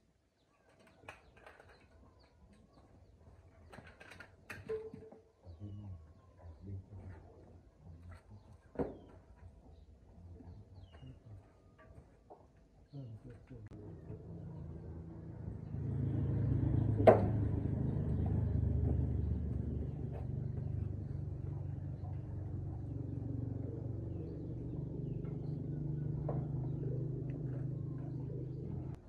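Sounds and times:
low machine drone: 0:13.7 - 0:29.0.

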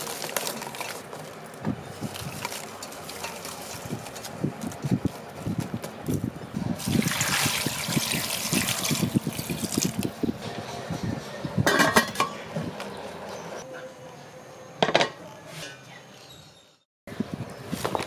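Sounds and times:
water poured into metal pot: 0:06.8 - 0:10.1.

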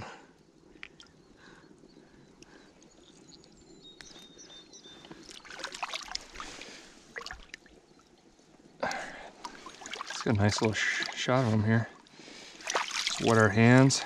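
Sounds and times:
stream water sloshing: 0:05.0 - 0:08.2, 0:09.0 - 0:14.0.

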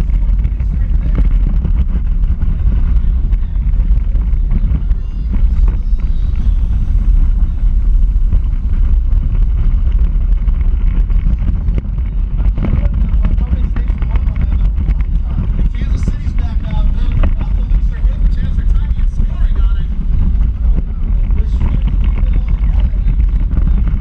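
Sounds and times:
car vibration rumble and rattles: 0:00.0 - 0:24.0
wind buffeting microphone: 0:00.0 - 0:24.0.

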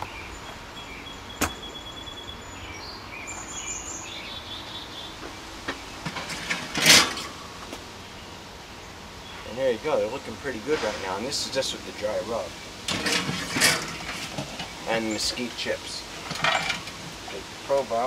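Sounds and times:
birds chirping: 0:00.0 - 0:18.0
metallic scrape of rack: 0:06.1 - 0:07.4, 0:10.6 - 0:11.5, 0:12.9 - 0:14.4.

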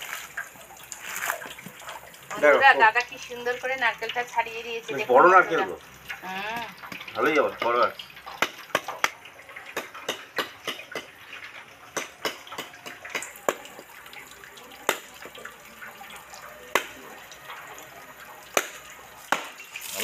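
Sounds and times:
knife striking coconut: 0:08.4 - 0:11.2, 0:11.9 - 0:13.8, 0:14.8 - 0:15.1, 0:16.7 - 0:17.0, 0:18.5 - 0:19.6.

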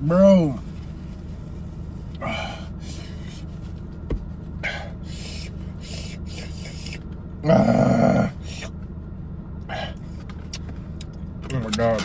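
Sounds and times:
man breathing heavily: 0:02.1 - 0:03.6, 0:04.5 - 0:07.0, 0:09.6 - 0:10.3.

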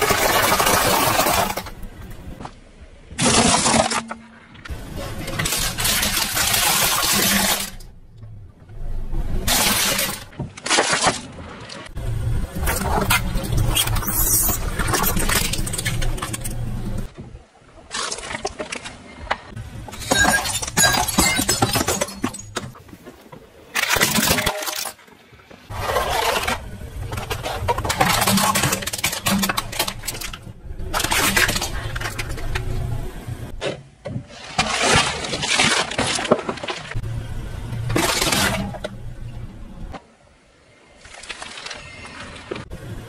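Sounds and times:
plastic and cardboard crunching: 0:00.0 - 0:01.8, 0:05.2 - 0:07.8, 0:25.7 - 0:32.8, 0:34.2 - 0:37.0, 0:37.9 - 0:38.9
low car engine hum: 0:11.8 - 0:17.2, 0:25.6 - 0:33.6, 0:36.9 - 0:40.6.

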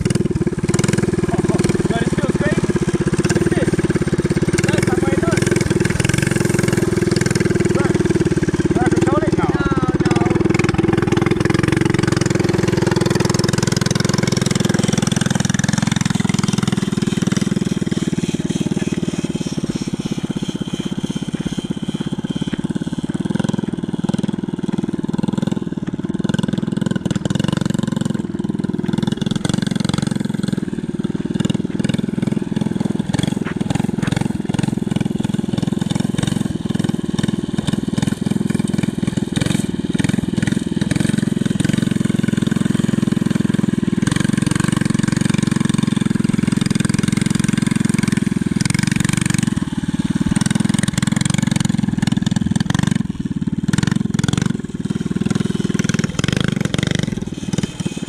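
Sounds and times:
mini bike engine running: 0:00.0 - 0:58.0.

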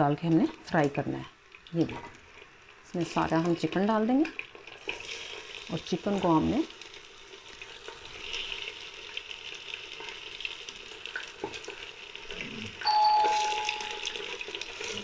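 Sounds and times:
chicken sizzling in hot oil: 0:00.0 - 0:15.0
steady ringing tone: 0:12.8 - 0:14.4.

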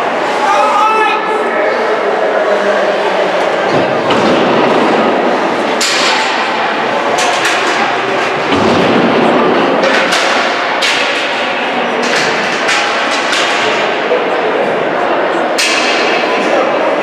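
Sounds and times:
hockey pucks hitting boards: 0:03.7 - 0:14.1, 0:15.6 - 0:16.4.

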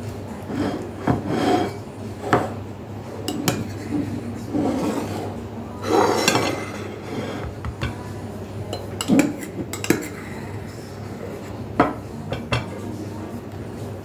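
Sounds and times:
utensils clinking on dishes: 0:03.2 - 0:08.1, 0:08.7 - 0:12.9.

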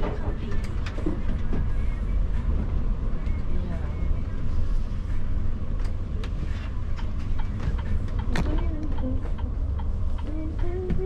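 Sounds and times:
coach engine rumbling: 0:00.0 - 0:11.0.

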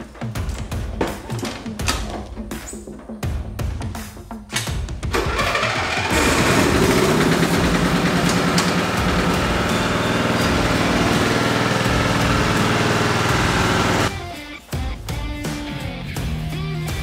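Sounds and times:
lawn mower engine starting and running: 0:05.1 - 0:14.1.

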